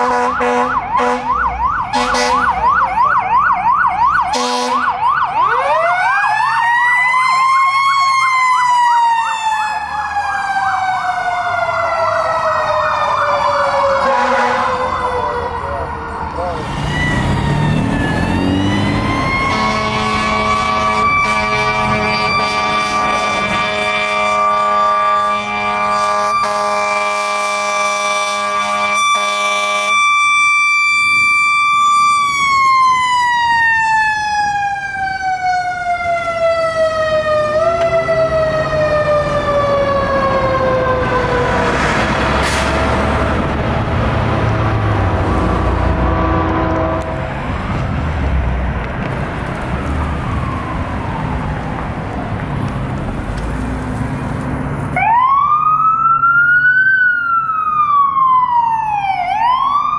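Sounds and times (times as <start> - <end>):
air horn blast: 0.0 - 2.6, 4.3 - 4.9, 14.0 - 15.0, 19.4 - 30.0, 44.4 - 47.5
electronic siren wailing: 0.0 - 47.5, 49.9 - 52.4, 55.0 - 59.9
diesel engine rumble: 30.9 - 55.2.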